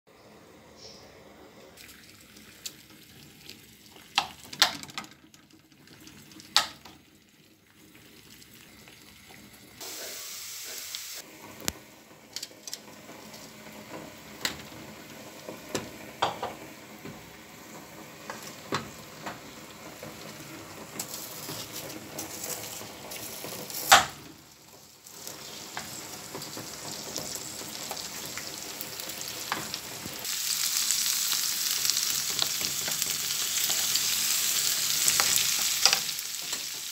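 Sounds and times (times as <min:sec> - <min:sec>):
onion sizzling in a frying pan: 0:06.5 - 0:36.9
utensil stirring and knocking pan: 0:12.1 - 0:30.1, 0:32.1 - 0:36.9.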